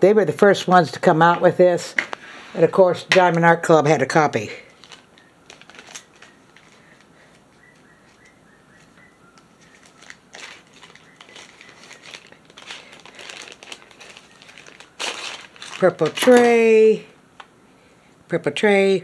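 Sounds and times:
plastic packaging crinkling: 4.6s - 16.8s.

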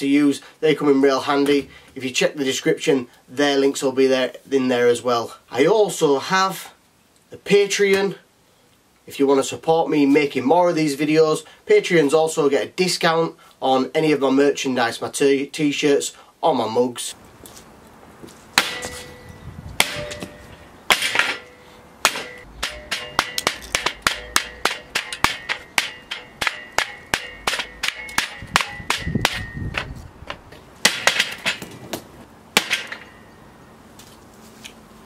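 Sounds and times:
hatchet chopping into wood: 18.6s - 19.0s, 19.8s - 20.3s, 20.9s - 21.4s, 22.0s - 29.9s, 30.8s - 31.7s, 32.6s - 33.0s.

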